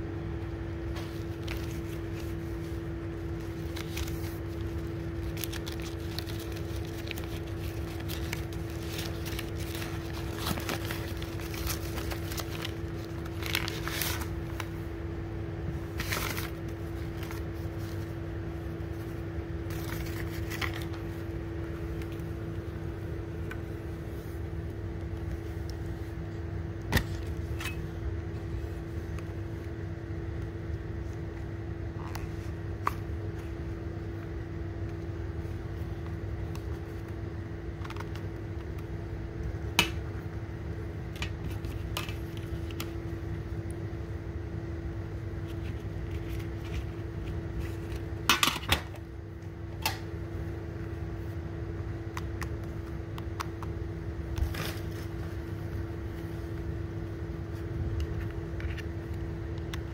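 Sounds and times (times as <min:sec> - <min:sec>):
steady low hum: 0:00.0 - 0:59.9
paper wrapping crinkling: 0:00.9 - 0:14.8, 0:15.8 - 0:18.2, 0:18.9 - 0:21.3.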